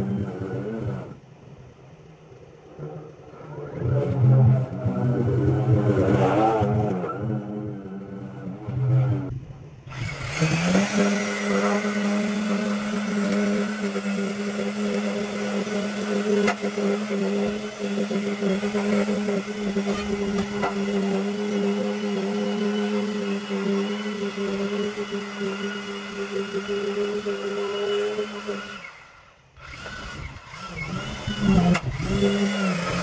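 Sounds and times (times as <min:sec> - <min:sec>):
string trimmer motor running: 0:09.9 - 0:33.0.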